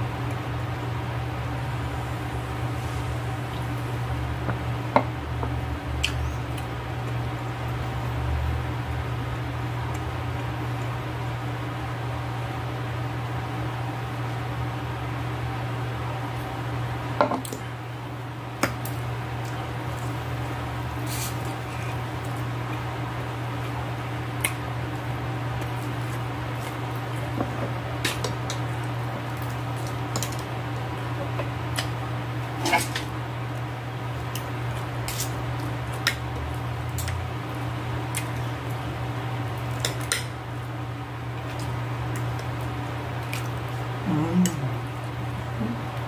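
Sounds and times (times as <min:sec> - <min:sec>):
wet chewing: 0:37.0 - 0:38.5, 0:41.4 - 0:45.1.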